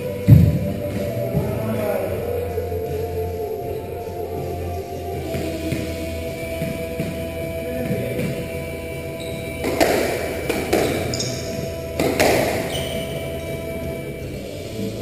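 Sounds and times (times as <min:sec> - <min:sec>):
background music: 0:00.0 - 0:15.0
squash ball hits: 0:09.4 - 0:13.3.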